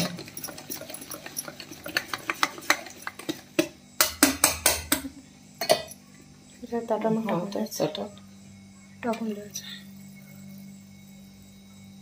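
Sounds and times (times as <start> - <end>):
utensil stirring batter in metal bowl: 0.0 - 5.1.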